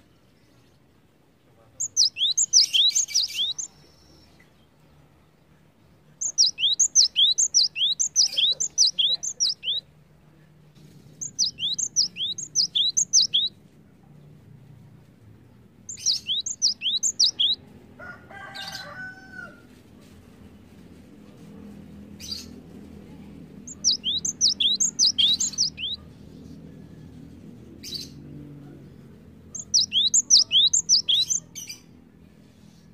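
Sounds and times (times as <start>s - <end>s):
bird singing rapid high notes: 1.8s - 3.7s, 6.2s - 9.8s, 11.2s - 13.5s, 15.9s - 17.6s, 23.7s - 26.0s, 29.6s - 31.5s
lower bird call: 1.8s - 3.8s, 6.2s - 9.9s, 11.2s - 13.5s, 15.9s - 17.6s, 23.7s - 26.0s, 29.6s - 31.5s.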